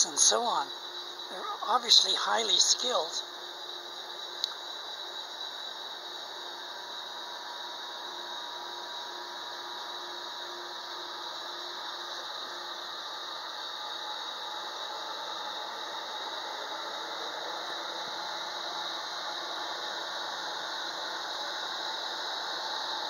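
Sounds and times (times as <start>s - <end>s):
boat engines droning: 0.0s - 3.2s
faint steady hum: 0.0s - 23.0s.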